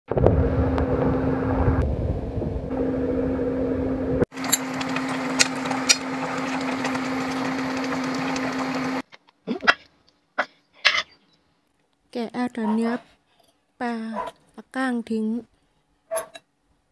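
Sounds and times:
broth boiling in a wok: 4.3 - 9.0
small electric motor humming: 4.3 - 9.0.

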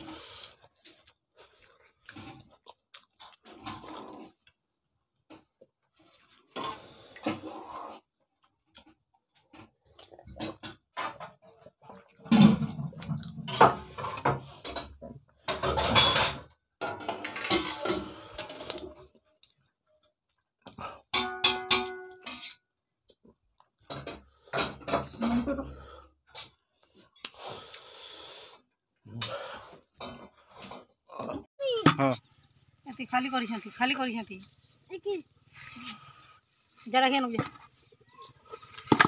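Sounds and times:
chewing and mouth sounds: 0.0 - 10.6, 18.4 - 21.1, 22.9 - 23.9.

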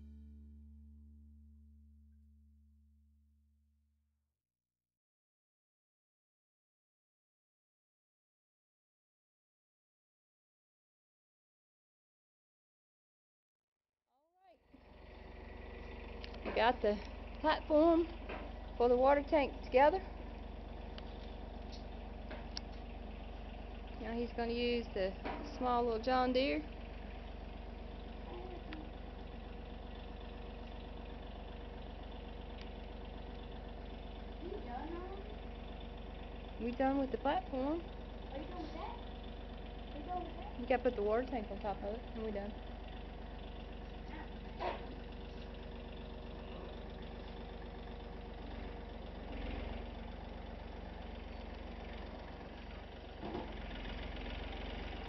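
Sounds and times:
tractor engine idling: 0.0 - 1.4, 14.6 - 55.0.

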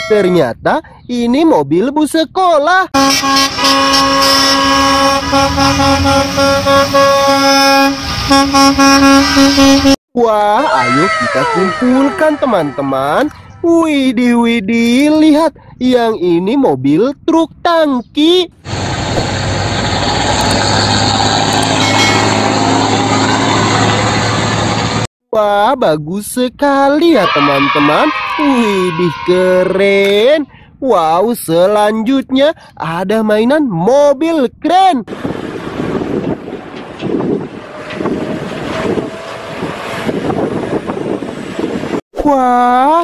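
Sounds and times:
bus horns honking: 0.0 - 0.4, 2.9 - 10.0, 19.6 - 25.0, 27.1 - 29.8, 35.2 - 41.9
tyre and traffic noise: 2.9 - 10.0, 10.6 - 14.3, 18.5 - 25.1, 27.0 - 30.5, 35.1 - 42.0
truck engine drone: 3.0 - 10.0, 18.5 - 25.1, 35.1 - 42.0
low engine rumble: 35.1 - 42.0.

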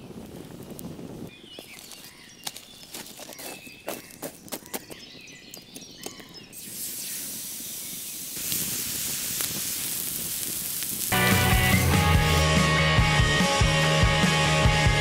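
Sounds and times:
campfire wood crackling: 0.0 - 14.2
meat sizzling on hot stone: 6.6 - 12.5.

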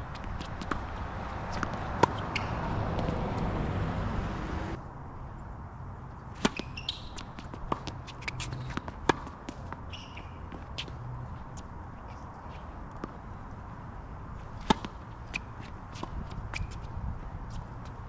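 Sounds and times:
rackets striking tennis balls: 0.1 - 3.5, 6.4 - 11.0.

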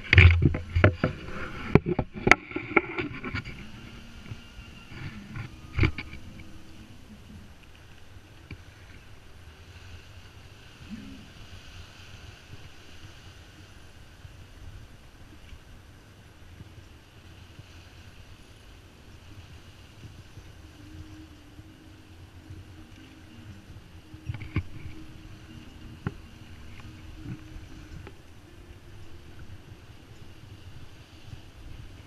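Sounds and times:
water rushing along hull: 0.0 - 32.0
wind on microphone: 0.0 - 32.0.

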